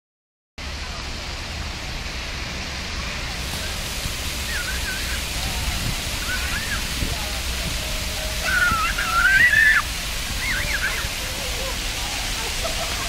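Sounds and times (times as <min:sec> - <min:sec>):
fountain jets splashing on paving: 0:00.6 - 0:13.0
faint high-pitched voices: 0:08.1 - 0:13.0.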